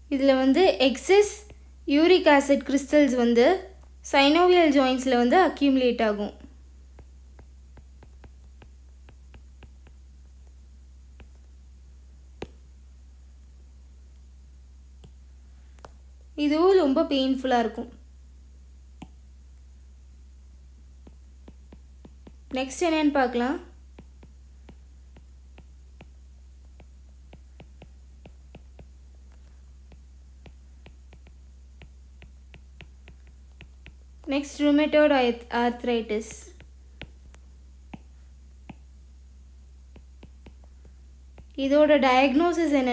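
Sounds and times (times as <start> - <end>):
steady low hum: 0.0 - 42.9
stylus tapping on tablet screen: 6.4 - 11.6, 12.2 - 12.8, 15.0 - 16.0, 19.0 - 19.2, 21.0 - 34.4, 36.1 - 39.0, 39.8 - 41.6.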